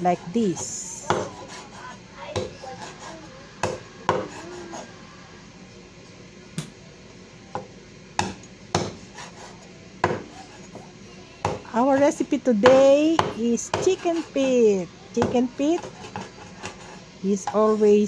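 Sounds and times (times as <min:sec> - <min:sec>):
cleaver chopping on wooden board: 0:01.1 - 0:01.6, 0:03.6 - 0:04.4, 0:08.2 - 0:09.0, 0:10.0 - 0:10.2.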